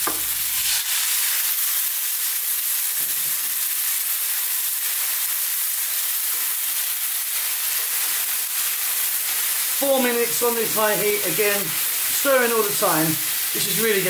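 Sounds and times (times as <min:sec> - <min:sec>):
vegetables sizzling in a hot pan: 0:00.0 - 0:14.0.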